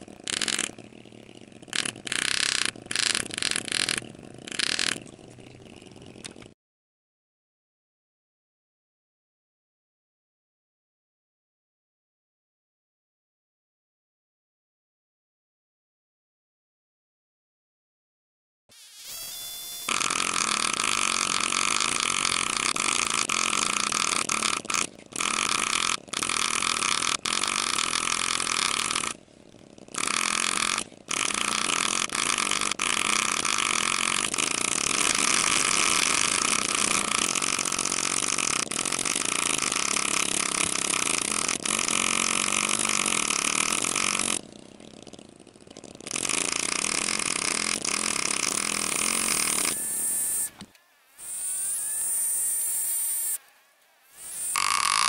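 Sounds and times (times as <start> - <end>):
pneumatic engraver high buzz: 0.0 - 0.8, 1.7 - 5.0, 18.7 - 29.2, 30.0 - 44.4, 46.0 - 55.0.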